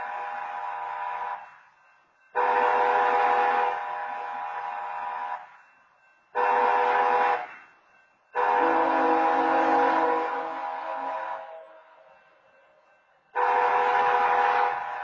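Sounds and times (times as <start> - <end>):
locomotive air horn blasts: 0.0 - 1.4, 2.4 - 5.3, 6.4 - 7.6, 8.4 - 11.6, 13.4 - 15.0.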